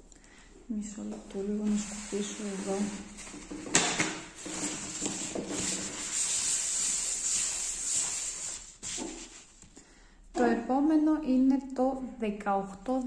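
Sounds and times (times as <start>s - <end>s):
paper towel rustling on desk: 1.4s - 9.8s.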